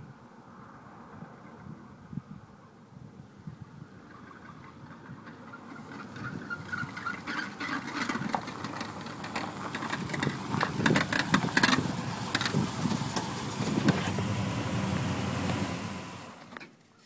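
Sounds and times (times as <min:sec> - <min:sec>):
wheel clicks and clunks: 0:04.1 - 0:14.3
car engine humming: 0:04.1 - 0:16.6.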